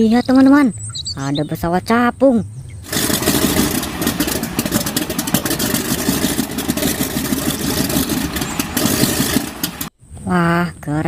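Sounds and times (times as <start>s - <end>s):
radial piston engine running: 2.9s - 9.9s.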